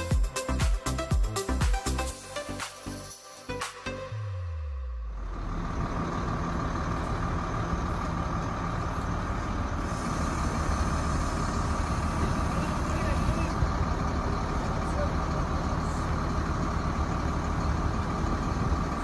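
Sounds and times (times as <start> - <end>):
crane diesel engine running: 4.2 - 19.0.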